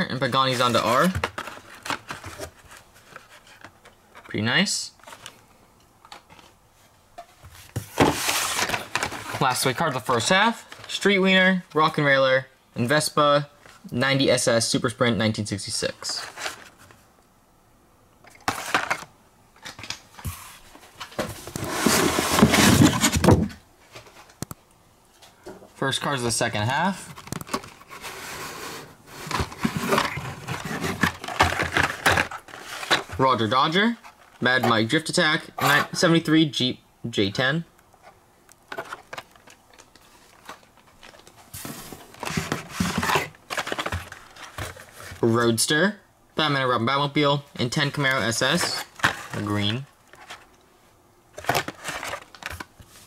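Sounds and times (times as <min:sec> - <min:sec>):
cardboard rustling and scraping: 0:00.2 - 0:04.3, 0:06.2 - 0:11.1, 0:15.9 - 0:17.0, 0:19.6 - 0:24.4, 0:26.9 - 0:34.9, 0:38.0 - 0:45.2, 0:48.0 - 0:50.6, 0:51.4 - 0:53.0.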